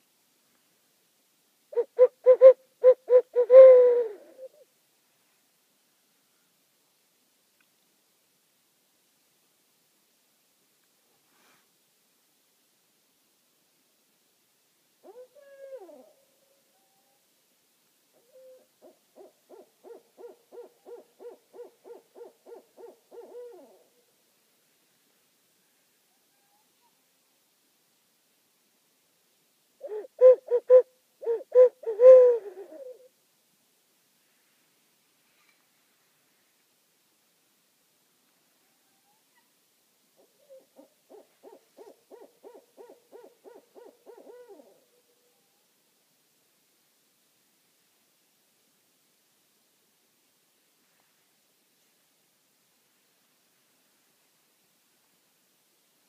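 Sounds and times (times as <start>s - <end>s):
owl hooting: 1.7s - 4.6s, 15.0s - 17.2s, 18.1s - 23.9s, 29.8s - 33.1s, 40.2s - 45.4s.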